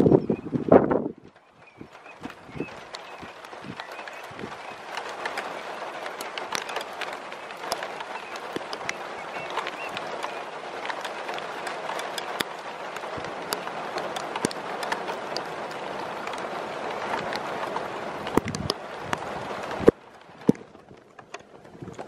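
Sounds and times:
rain hiss: 0.1 - 22.0
drops ticking: 2.2 - 17.5.

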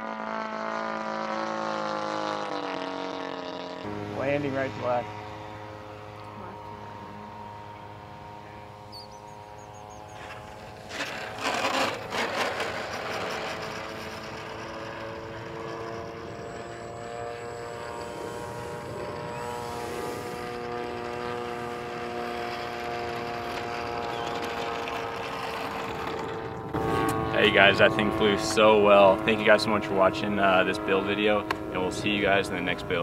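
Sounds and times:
electric motor and propeller whine: 0.0 - 33.0
loud noisy bursts: 16.9 - 23.7.

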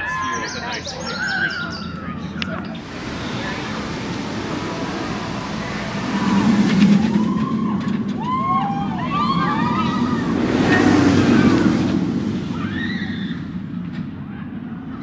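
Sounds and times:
roller coaster roaring past: 0.0 - 15.0
riders screaming: 6.0 - 13.7.

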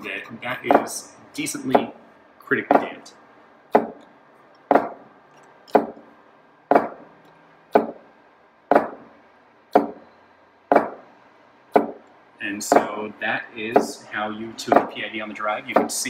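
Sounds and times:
servo motor reversing knocks: 4.7 - 5.0, 6.7 - 7.1, 7.7 - 8.0, 8.7 - 9.1, 9.7 - 10.0, 10.7 - 11.0.

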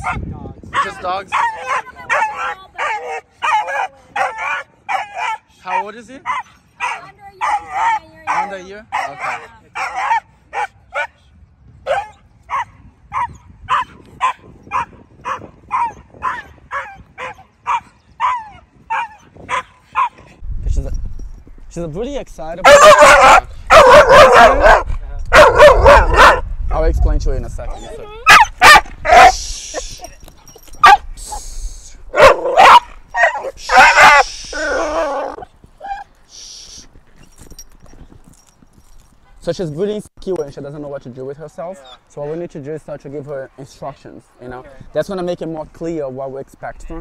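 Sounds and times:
dog barking: 0.0 - 11.2, 11.8 - 20.3, 22.6 - 26.5, 28.2 - 29.4, 30.8 - 31.1, 32.1 - 36.0
dog whining: 27.7 - 31.0, 32.2 - 36.1.

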